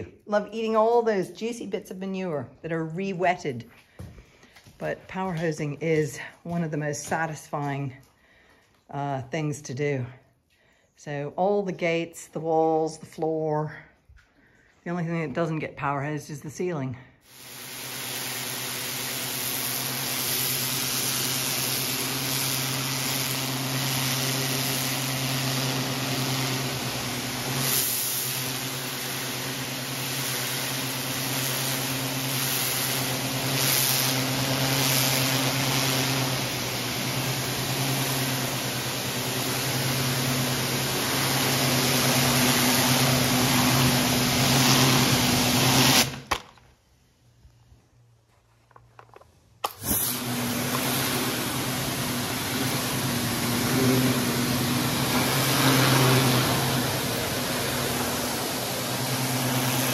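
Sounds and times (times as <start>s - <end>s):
water jet hissing: 17.2s - 46.3s, 49.6s - 59.9s
pressure washer pump humming: 17.2s - 46.5s, 49.0s - 59.9s.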